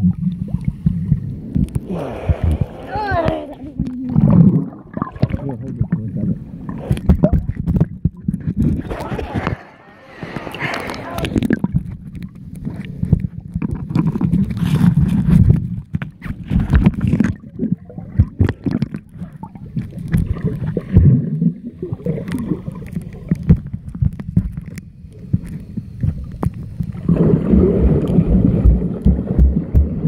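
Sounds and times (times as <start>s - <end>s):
underwater sloshing rumble: 0.0s - 30.0s
underwater clicks and knocks: 6.7s - 9.7s, 10.3s - 21.1s, 22.2s - 30.0s.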